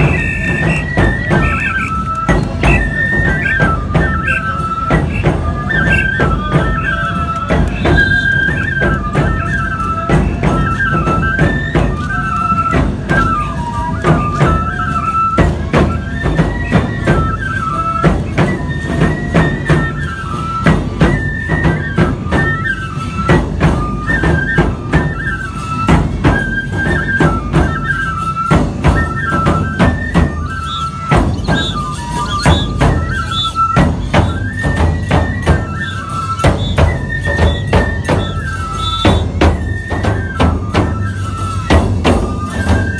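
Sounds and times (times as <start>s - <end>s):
bamboo flutes playing melody: 0.0s - 42.9s
taiko drum beats: 0.0s - 42.9s
hand cymbals clashing: 30.4s - 35.2s, 35.8s - 40.0s.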